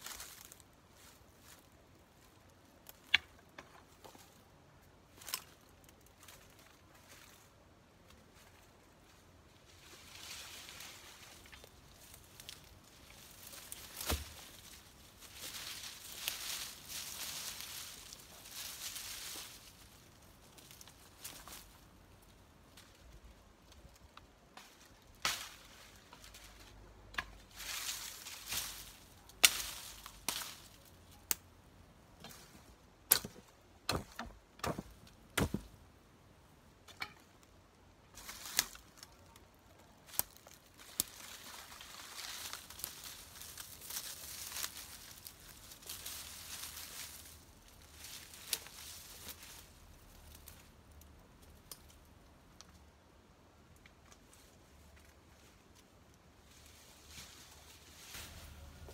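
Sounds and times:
dry brush rustling: 0.0s - 31.4s, 32.0s - 35.8s, 38.0s - 50.9s, 53.9s - 58.9s
twigs snapping: 10.2s - 21.8s, 22.8s - 31.5s, 32.2s - 35.8s, 38.1s - 52.8s.

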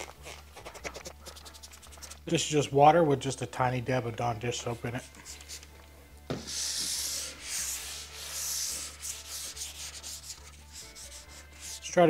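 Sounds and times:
wet sanding wood: 6.4s - 11.9s.

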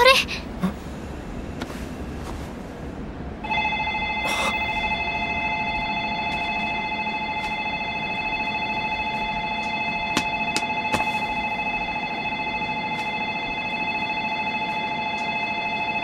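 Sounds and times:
electronic departure bell ringing: 3.4s - 16.0s.

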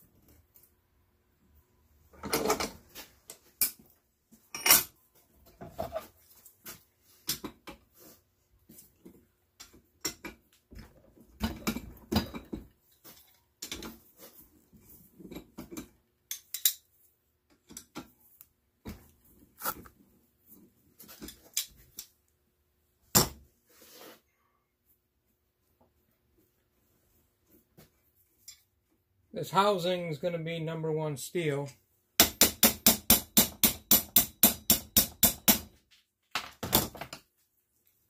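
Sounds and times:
pliers clicking and clanking on metal: 15.7s - 16.9s.

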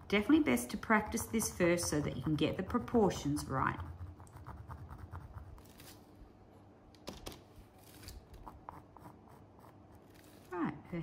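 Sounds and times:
pencil scratching on canvas: 0.0s - 6.0s, 8.4s - 11.0s
low steady hum: 0.0s - 11.0s.

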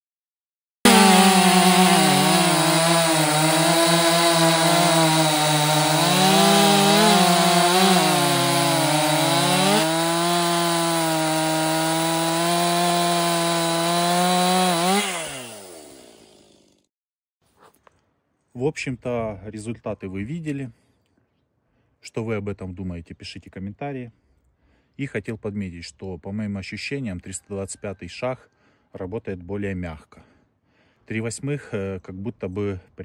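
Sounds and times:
chainsaw cutting through log: 0.8s - 16.9s.

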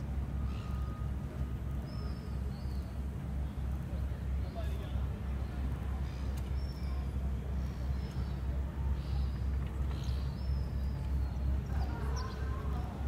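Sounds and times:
faint bird chirps: 0.4s - 1.2s.

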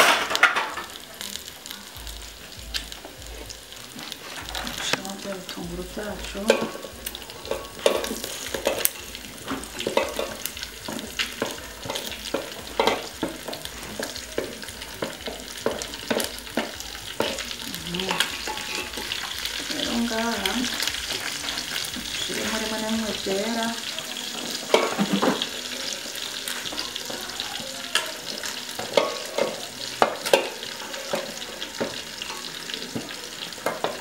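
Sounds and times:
meat sizzling in a pot: 0.0s - 34.0s
spatula scraping against pot: 7.5s - 19.7s.

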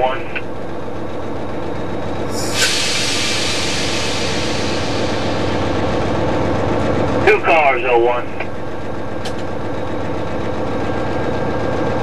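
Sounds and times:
diesel locomotive engine running: 0.0s - 12.0s
train rumbling on rails: 0.4s - 12.0s
loud air hiss: 2.3s - 7.2s.

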